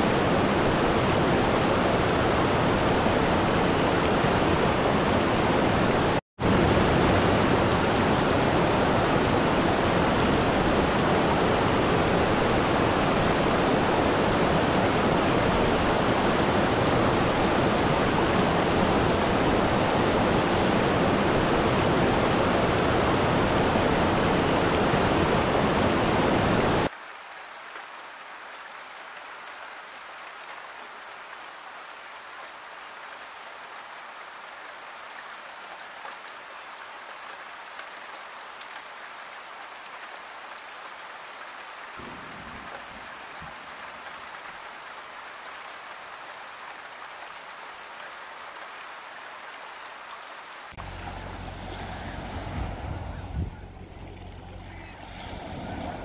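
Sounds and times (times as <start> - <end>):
waterfall rushing over rocks: 0.0 - 50.9
rain falling on trees: 26.7 - 52.0
rain drops ticking: 26.9 - 50.8
low rumble: 50.8 - 56.0.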